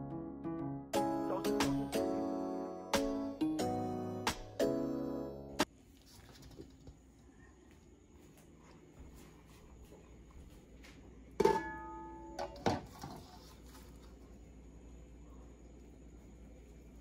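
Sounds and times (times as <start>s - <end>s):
metal bowl clanging against pot: 11.4s - 12.8s.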